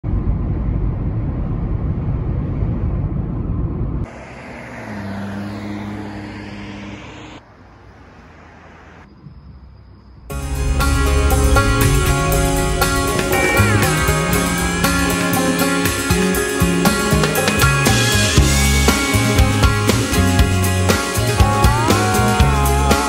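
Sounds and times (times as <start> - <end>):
road and engine rumble in car: 0.0 - 23.0
vehicle hum: 0.0 - 23.0
guitar music: 10.3 - 23.0.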